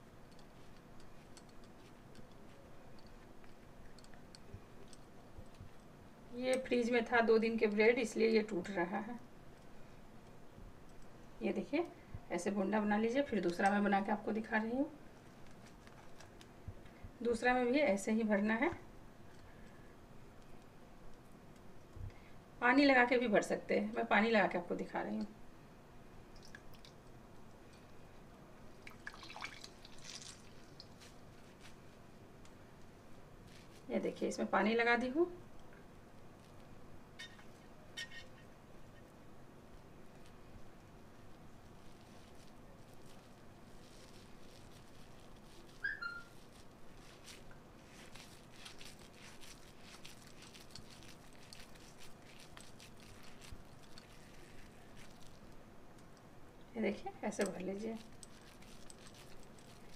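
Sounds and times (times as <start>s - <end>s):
water dripping and splashing: 26.3s - 27.0s, 28.8s - 31.0s
wet hands squishing dough: 28.8s - 32.0s, 41.6s - 55.6s.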